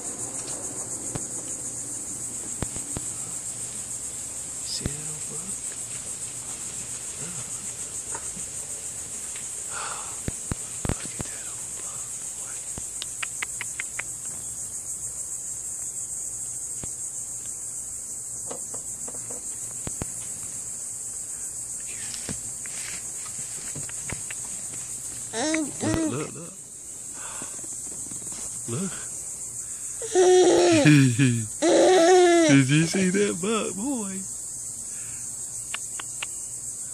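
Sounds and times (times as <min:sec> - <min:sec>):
insects chirping chorus: 0:00.0 - 0:36.9
sharp clicks: 0:12.8 - 0:14.1, 0:35.6 - 0:36.4.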